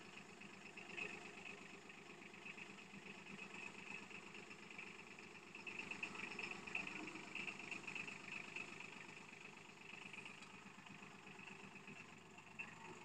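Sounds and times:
tractor engine running faintly: 0:00.0 - 0:13.0.

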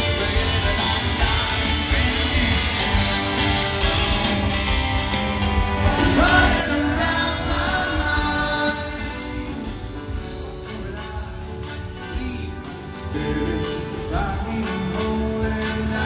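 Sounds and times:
person singing: 0:00.0 - 0:04.2, 0:05.7 - 0:16.0
live rock band: 0:00.0 - 0:16.0.

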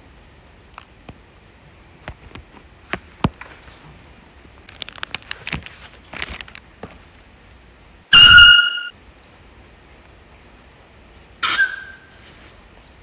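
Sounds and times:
rustling: 0:02.2 - 0:07.7
air horn blast: 0:08.1 - 0:08.9.

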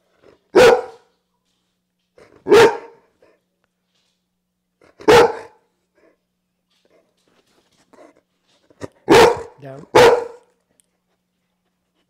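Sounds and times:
dog barking: 0:00.5 - 0:01.1, 0:02.4 - 0:03.0, 0:04.9 - 0:05.6, 0:09.0 - 0:10.5.

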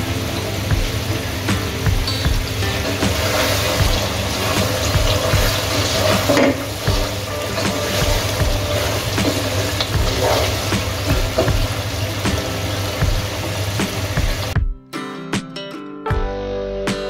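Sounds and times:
curry sizzling in a pot: 0:00.0 - 0:14.6.

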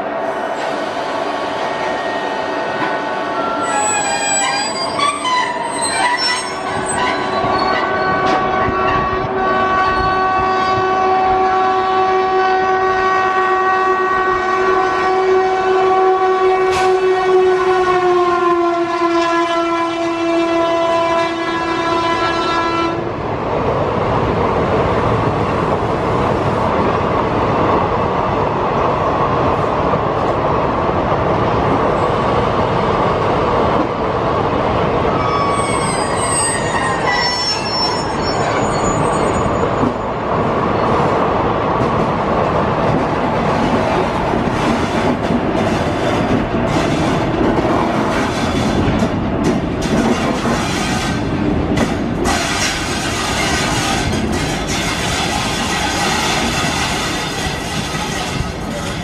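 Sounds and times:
train wheels on rails: 0:00.0 - 0:11.8, 0:16.6 - 0:17.8, 0:21.6 - 0:59.0
locomotive horn blast: 0:03.4 - 0:23.1.

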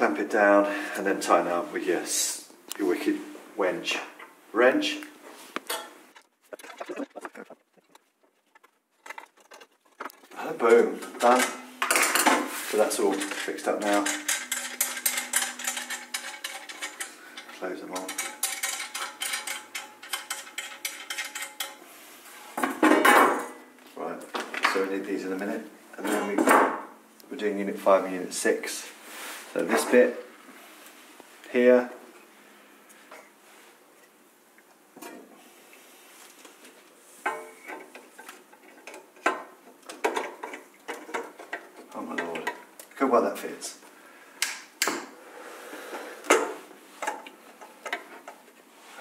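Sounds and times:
scraping rustle: 0:07.8 - 0:18.4
metal parts knocking and clinking: 0:13.0 - 0:21.8
metal tools clicking on chassis: 0:13.0 - 0:21.8.

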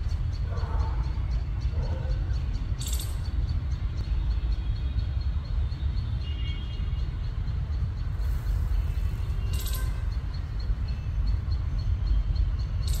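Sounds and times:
high-pitched hiss or chirp: 0:08.0 - 0:10.3.

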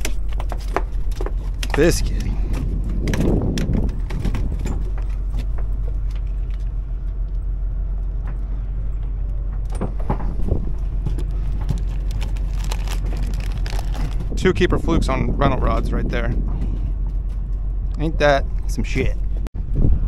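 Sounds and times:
boat engine rumble: 0:00.0 - 0:20.0.

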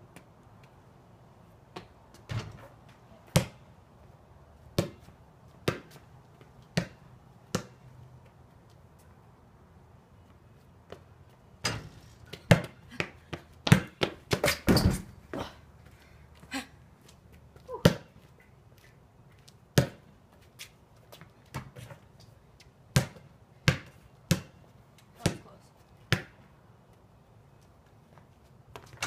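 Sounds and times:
basketball bouncing on concrete: 0:01.8 - 0:03.6, 0:04.8 - 0:06.0, 0:06.7 - 0:07.8, 0:11.6 - 0:15.4, 0:17.7 - 0:18.1, 0:19.8 - 0:20.0, 0:21.1 - 0:21.9, 0:22.9 - 0:24.6, 0:25.2 - 0:25.5, 0:26.1 - 0:26.4.

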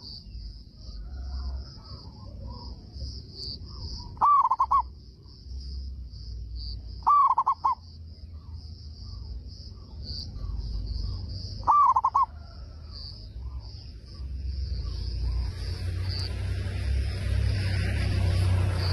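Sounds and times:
dove cooing: 0:04.0 - 0:04.9, 0:07.0 - 0:07.8, 0:11.0 - 0:13.6.

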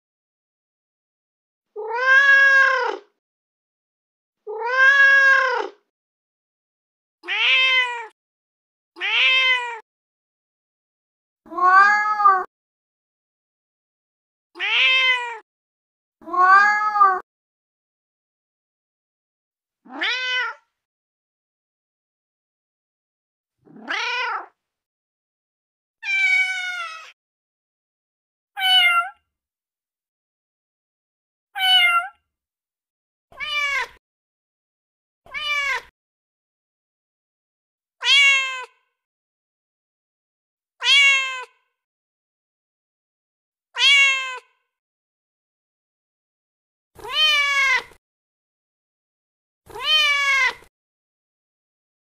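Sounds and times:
cat meowing: 0:01.8 - 0:03.2, 0:04.4 - 0:05.9, 0:07.2 - 0:08.2, 0:09.0 - 0:09.8, 0:11.5 - 0:12.5, 0:14.6 - 0:15.4, 0:16.2 - 0:17.2, 0:19.9 - 0:20.7, 0:23.7 - 0:24.6, 0:26.0 - 0:27.2, 0:28.6 - 0:29.2, 0:31.6 - 0:32.2, 0:33.3 - 0:34.0, 0:35.3 - 0:35.9, 0:38.0 - 0:38.8, 0:40.8 - 0:41.6, 0:43.8 - 0:44.6, 0:47.0 - 0:48.0, 0:49.7 - 0:50.7.

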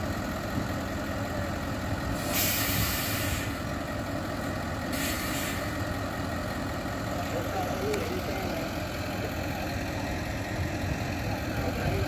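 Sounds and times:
diesel truck engine idling: 0:00.0 - 0:12.0
air brake hiss: 0:02.2 - 0:03.6, 0:04.9 - 0:05.7.

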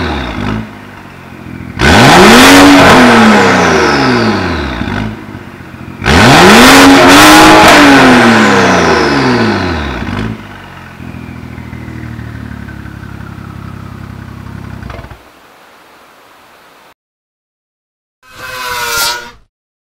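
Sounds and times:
car engine idling: 0:00.0 - 0:06.7, 0:08.3 - 0:15.4.

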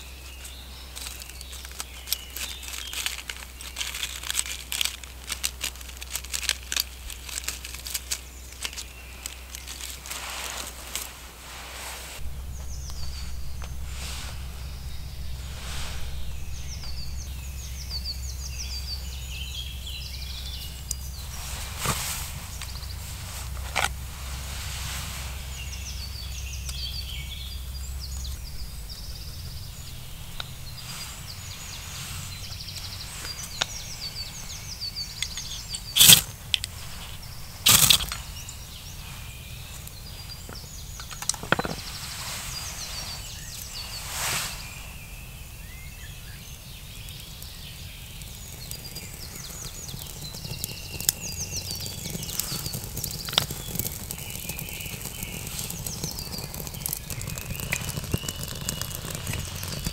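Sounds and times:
songbirds chirping: 0:00.0 - 0:59.9
loud sharp cracks: 0:37.6 - 0:38.3.

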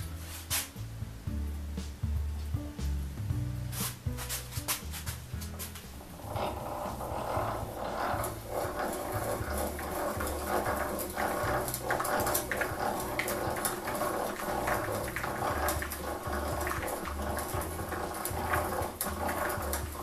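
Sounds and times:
hand drill gears whirring: 0:05.6 - 0:20.0
drill bit grinding into wood: 0:06.0 - 0:20.0.

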